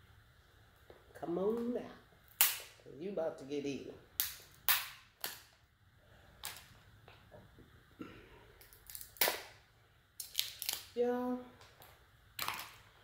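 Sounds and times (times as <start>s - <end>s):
crab shell cracking: 2.3s - 2.8s, 8.6s - 9.6s, 10.2s - 10.9s.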